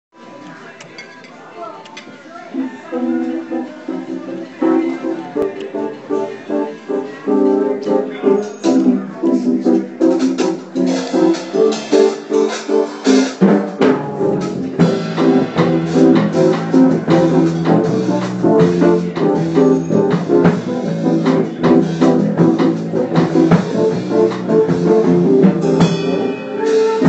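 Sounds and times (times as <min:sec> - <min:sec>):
guitar: 0:02.6 - 0:27.0
drum kit: 0:07.4 - 0:27.0
bass line: 0:13.9 - 0:26.5.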